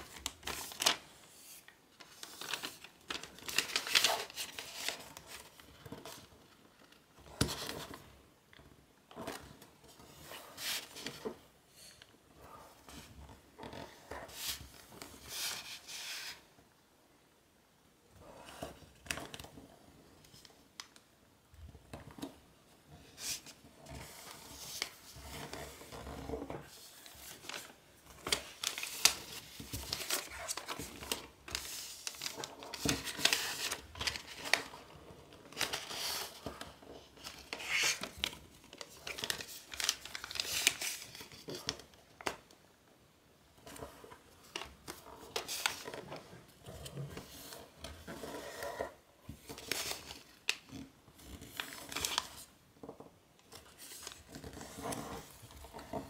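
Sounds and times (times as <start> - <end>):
paper rustling and crinkling: 0.0 - 8.1, 22.0 - 42.6, 43.6 - 56.0.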